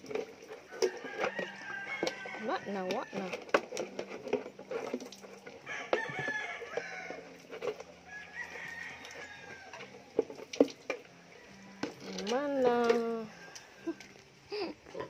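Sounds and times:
rooster crowing: 0.7 - 3.3, 5.6 - 7.4, 8.0 - 10.0, 13.0 - 14.2.

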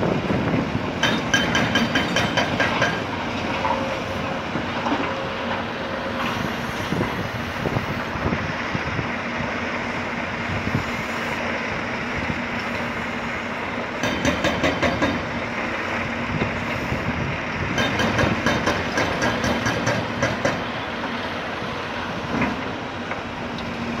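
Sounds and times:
heavy diesel machinery humming: 0.0 - 24.0
hydraulic breaker hammering concrete: 1.0 - 3.9, 14.0 - 15.3, 17.7 - 20.8.

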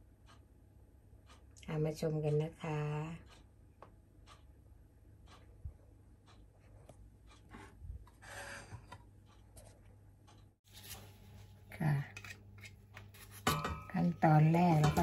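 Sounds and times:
soft ticks: 0.2 - 0.5, 1.2 - 7.5, 10.2 - 10.5
light rubbing handling noise: 10.7 - 15.0.

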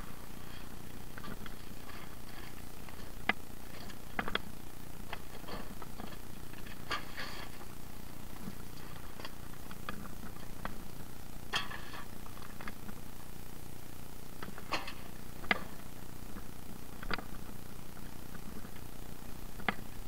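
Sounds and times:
rubbish clicks and rustles: 0.0 - 13.0.

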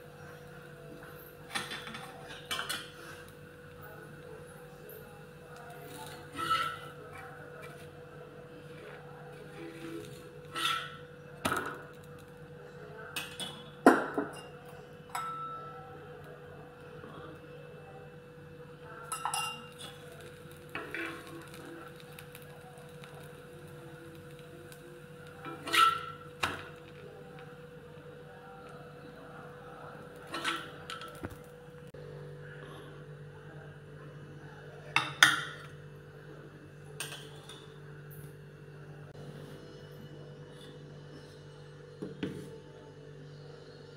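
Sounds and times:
steady low hum: 0.0 - 43.9
metal spatula scraping griddle: 5.9 - 7.0, 9.5 - 11.0, 25.4 - 26.2.

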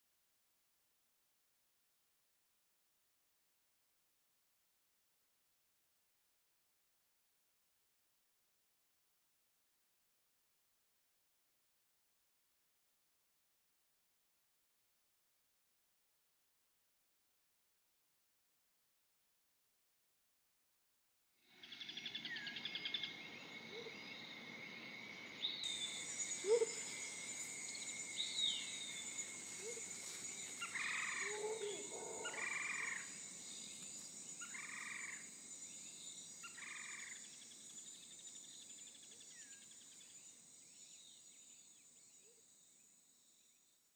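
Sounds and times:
continuous animal trill: 25.6 - 37.4
loud animal calls: 25.8 - 27.6, 28.2 - 33.1.

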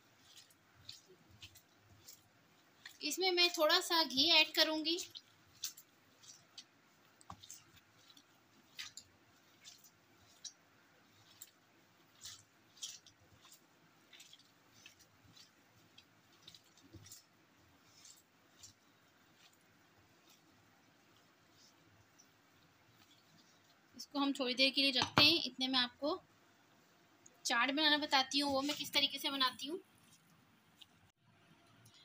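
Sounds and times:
hand kneading raw meat: 0.0 - 25.4.

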